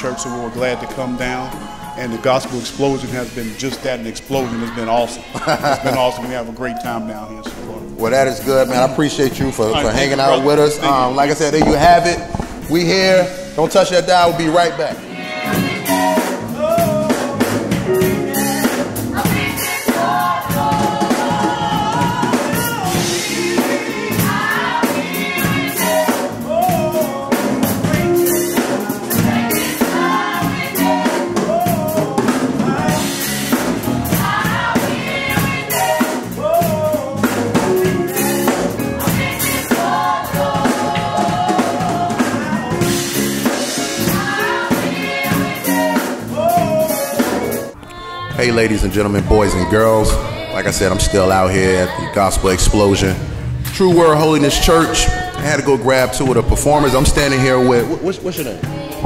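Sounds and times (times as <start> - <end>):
women singing gospel amplified: 0.0 - 59.0
steady drum beat: 5.4 - 47.8.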